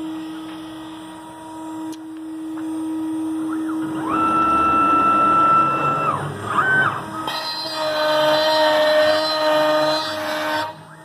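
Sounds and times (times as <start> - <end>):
router spindle whining: 0.0 - 11.0
stepper motors whining: 0.0 - 11.0.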